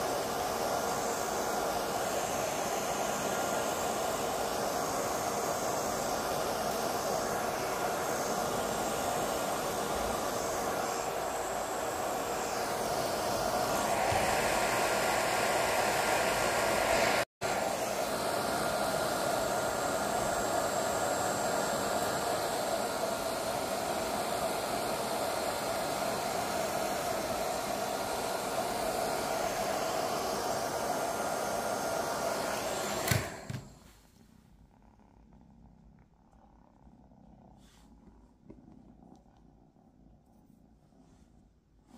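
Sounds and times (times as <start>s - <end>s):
hair dryer blowing: 0.0s - 34.0s
hair dryer switch click: 33.0s - 33.7s.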